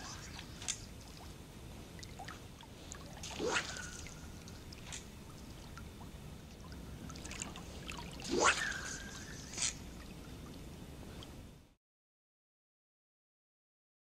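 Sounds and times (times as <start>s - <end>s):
fly line swishing: 0.0s - 1.3s, 2.3s - 5.2s, 7.2s - 10.0s
water lapping at shore: 0.0s - 11.5s.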